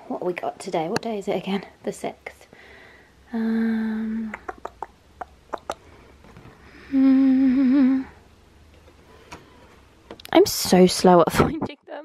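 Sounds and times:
woman humming: 3.3s - 5.8s, 6.7s - 8.3s.

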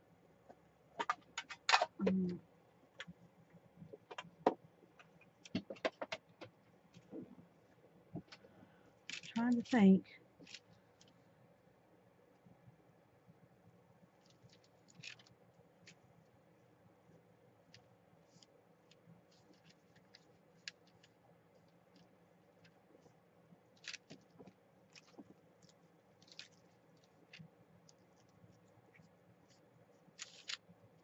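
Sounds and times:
faint clicks and taps: 3.0s - 9.8s
hands rustling paper: 14.2s - 16.3s, 17.7s - 31.0s.

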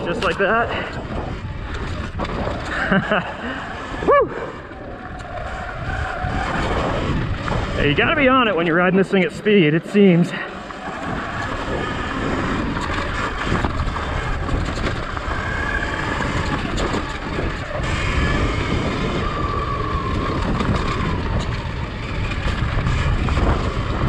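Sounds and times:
tyres rumbling on dirt: 0.0s - 24.0s
wind rush on camera: 0.0s - 24.0s
electric motor whine: 10.6s - 24.0s.

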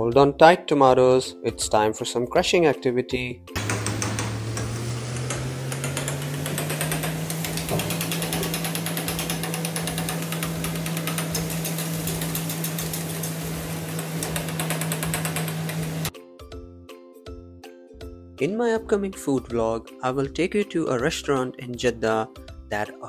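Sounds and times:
metal spatula tapping and scraping wok: 3.6s - 16.1s.

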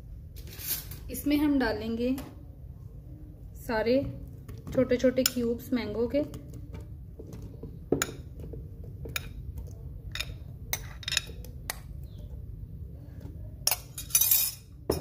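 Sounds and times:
rustling scrape: 0.4s - 1.0s.

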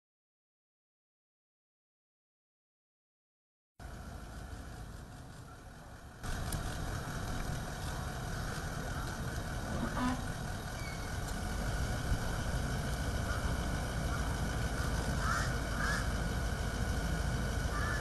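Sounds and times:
engine idling: 3.8s - 18.0s
outdoor background noise: 3.8s - 18.0s.

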